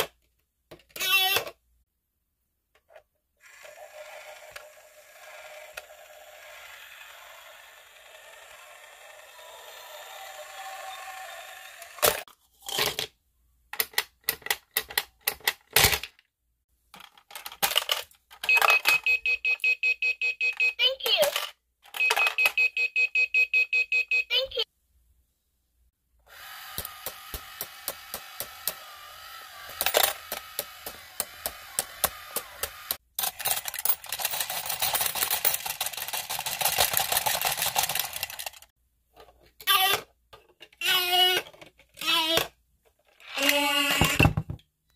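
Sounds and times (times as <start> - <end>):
toy motor whirring: 1.0 - 1.4, 3.4 - 12.3, 26.2 - 38.7, 39.7 - 40.0, 40.8 - 42.5, 43.2 - 44.4
plastic toy clicks and rattles: 13.7 - 16.2, 16.9 - 19.1, 21.1 - 22.6, 29.6 - 38.7, 43.2 - 44.3
rapid plastic gear clatter: 29.7 - 38.7
coins clicking into machine: 33.2 - 38.6.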